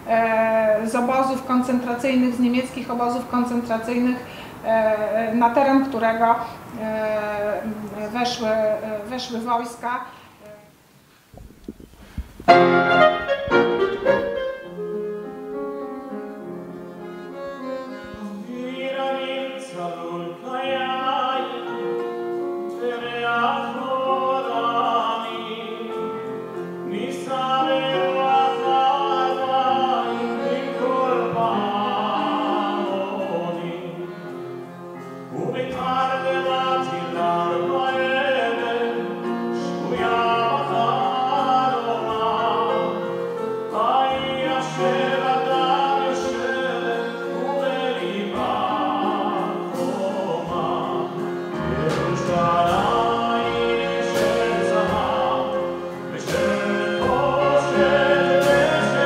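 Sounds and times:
piano and small band playing: 0:12.5 - 0:59.0
cantor singing: 0:17.0 - 0:59.0.

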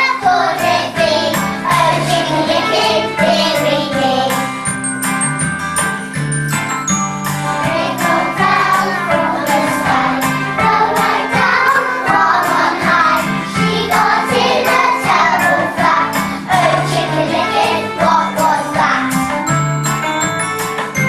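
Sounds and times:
children singing together: 0:00.0 - 0:04.4, 0:07.6 - 0:19.2
backing music with steady beat: 0:00.0 - 0:21.0.

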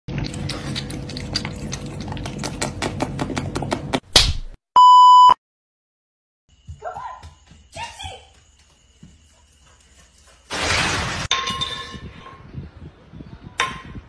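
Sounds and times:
cat lapping water: 0:00.1 - 0:03.2.

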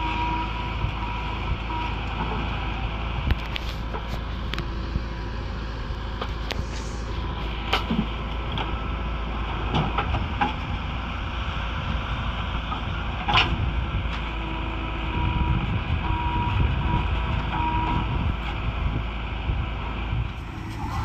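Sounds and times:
diesel engine running under load: 0:00.0 - 0:21.0
hydraulic arm whine: 0:20.3 - 0:21.0.

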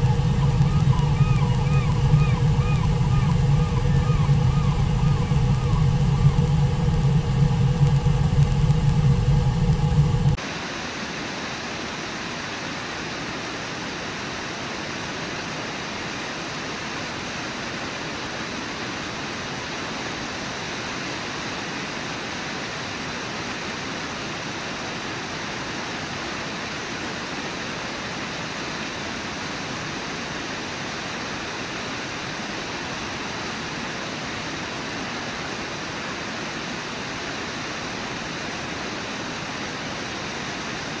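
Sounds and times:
low rumble with hum: 0:00.0 - 0:10.4
river water rushing: 0:00.0 - 0:41.0.

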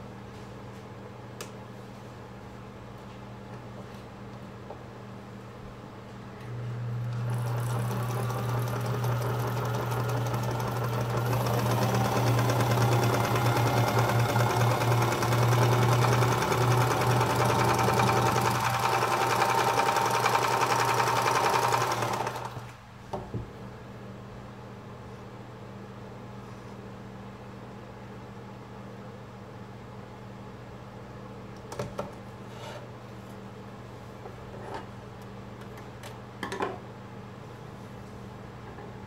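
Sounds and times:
toy sewing machine running: 0:07.2 - 0:22.6.

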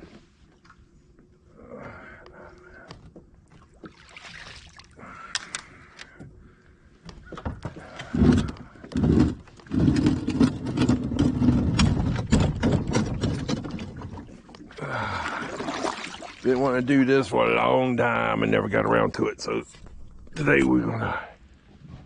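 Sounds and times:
kayak hull knocking and scraping: 0:07.1 - 0:14.8
low rumbling and thumps: 0:07.3 - 0:14.7, 0:19.6 - 0:22.0.

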